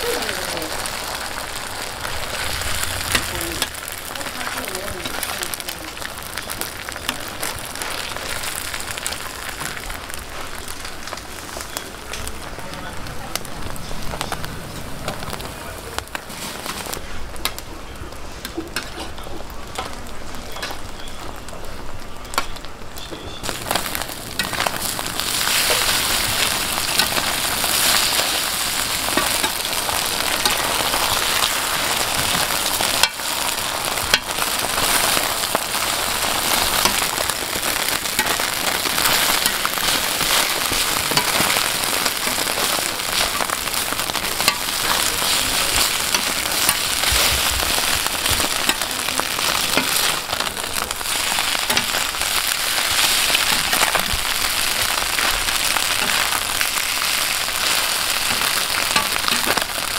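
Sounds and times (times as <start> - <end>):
batter sizzling on griddle: 0.0 - 59.9.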